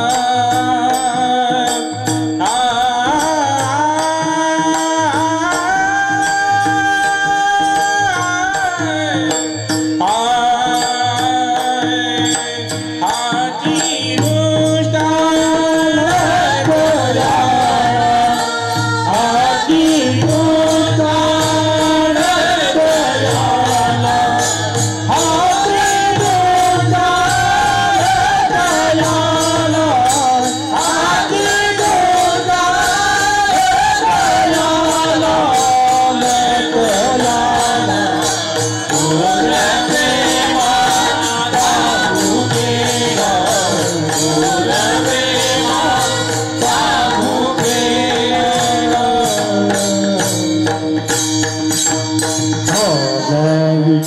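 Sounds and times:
women singing devotional tune: 15.5 - 49.5.

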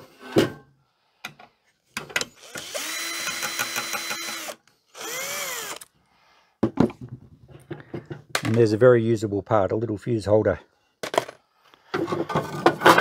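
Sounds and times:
electric drill whining: 2.2 - 5.9.

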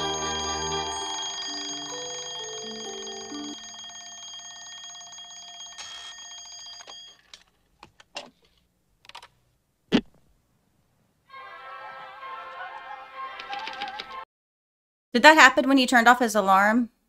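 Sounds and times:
alarm clock bell ringing: 0.0 - 7.4.

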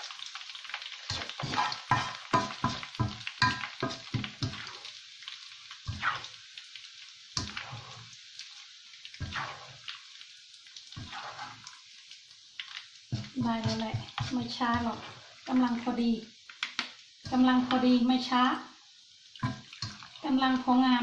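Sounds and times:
hot oil sizzling in a wok: 0.0 - 21.0
spatula knocking against strainer: 1.4 - 4.3.

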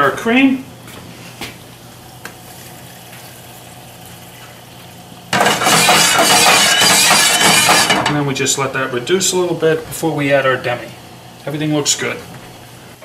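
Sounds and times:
cream sizzling in hot pan: 2.0 - 8.0.

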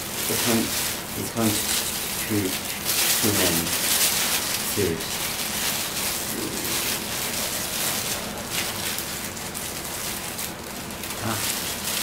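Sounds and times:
plastic bag rustling: 0.0 - 12.0.

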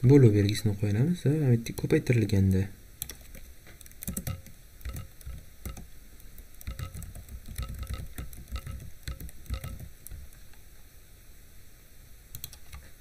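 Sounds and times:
keyboard typing: 3.0 - 10.5, 12.3 - 12.9.

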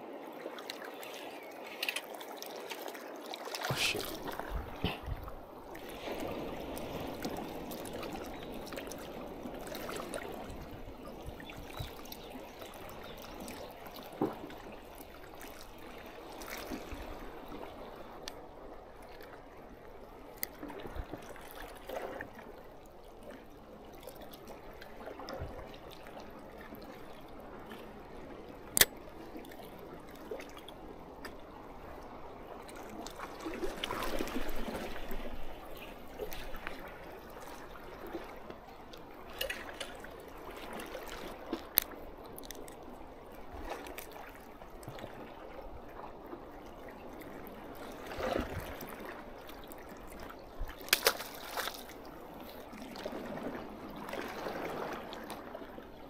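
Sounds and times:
seawater lapping among rocks: 0.0 - 56.0.

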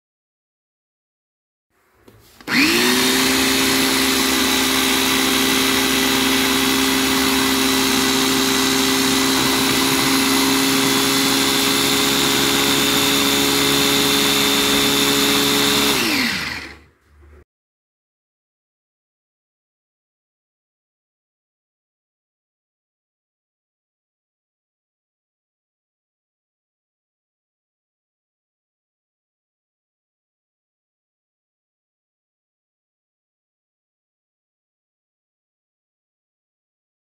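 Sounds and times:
electric food chopper motor: 2.4 - 16.9.

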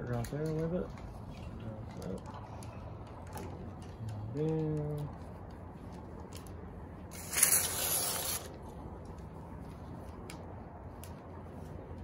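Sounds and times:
adhesive tape ripping: 7.1 - 8.6.

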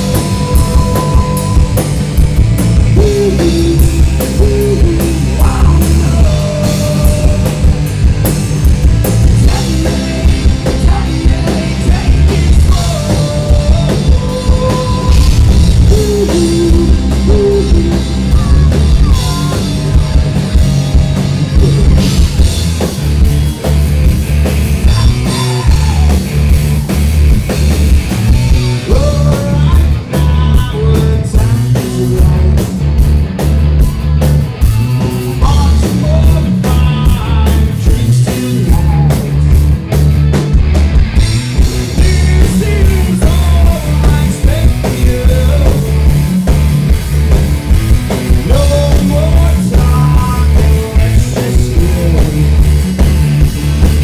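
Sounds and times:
man singing: 0.0 - 1.9, 2.8 - 7.9, 9.2 - 20.5, 24.8 - 26.3, 28.2 - 32.8, 35.3 - 39.6, 41.8 - 46.4, 48.3 - 52.8
bass guitar: 0.0 - 54.0
drum kit: 0.0 - 54.0
electric guitar: 0.0 - 54.0.

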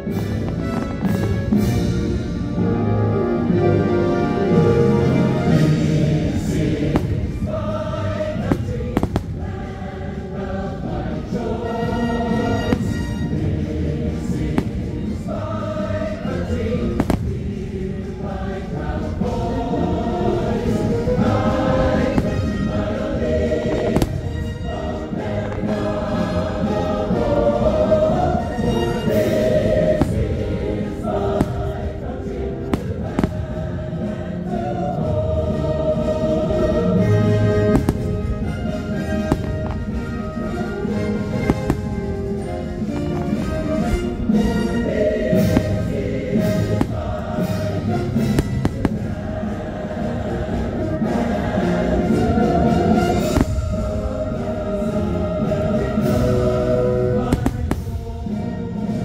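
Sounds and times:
choir singing over show music: 0.0 - 59.0
firework bangs: 6.3 - 9.9, 12.3 - 18.0, 21.7 - 26.0, 28.9 - 33.8, 37.0 - 44.7, 45.3 - 49.7, 52.9 - 54.1, 57.3 - 58.2.

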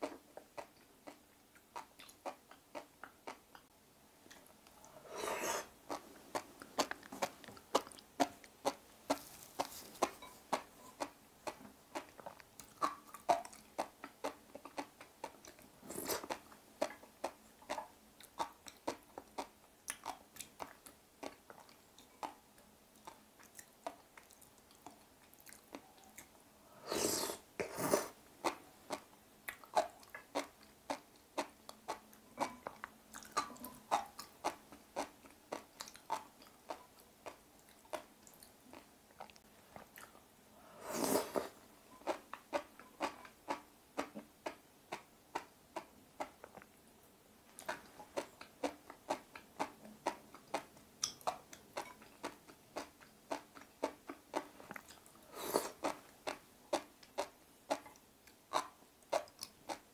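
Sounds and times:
crunchy chewing: 4.3 - 22.4, 47.5 - 59.9.

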